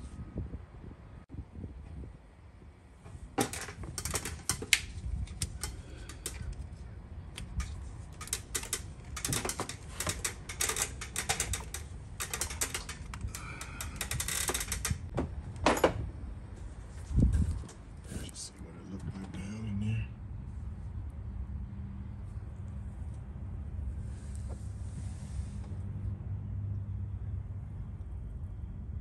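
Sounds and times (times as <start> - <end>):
light metallic clicks and clatter: 3.4 - 16.0.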